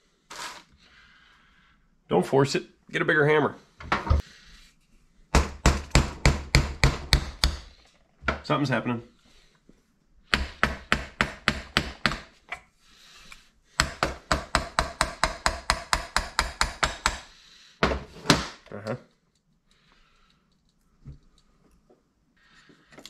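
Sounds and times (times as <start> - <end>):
hammer tapping on metal: 13.8 - 17.3.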